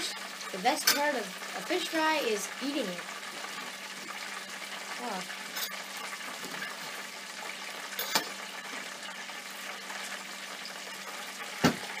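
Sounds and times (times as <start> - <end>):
cutlery clinking on a plate: 8.0 - 8.3.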